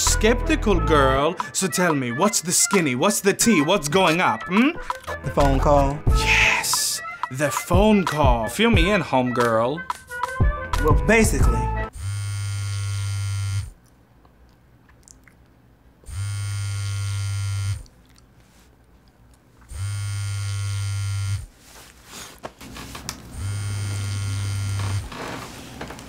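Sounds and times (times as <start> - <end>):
mobile phone vibrating: 11.9 - 13.8, 16.1 - 17.9, 19.7 - 21.5, 23.2 - 25.4
rustling of person stirring: 17.9 - 19.6, 21.5 - 23.1.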